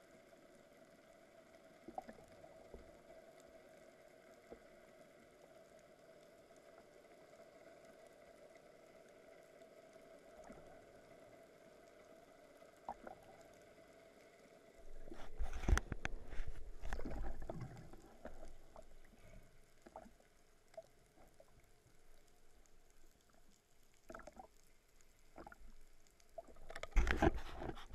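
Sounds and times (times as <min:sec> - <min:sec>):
faint underwater hum: 0:00.0 - 0:27.9
fish thrashing underwater: 0:14.9 - 0:19.0.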